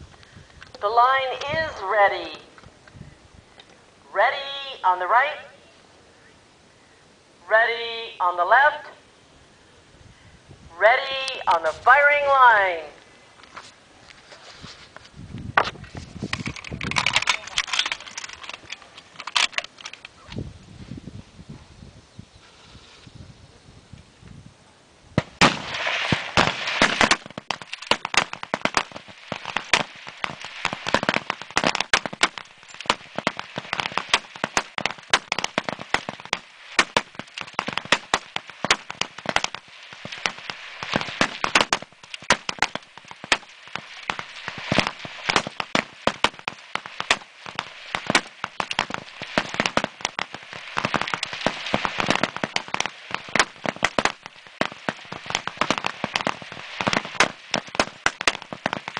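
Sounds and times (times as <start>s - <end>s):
rifles firing rapidly: 25.4s - 58.9s.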